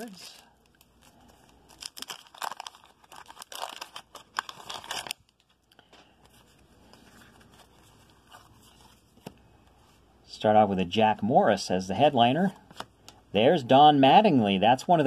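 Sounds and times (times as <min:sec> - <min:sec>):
plastic wrapper tearing and crinkling: 0:00.0 - 0:05.8.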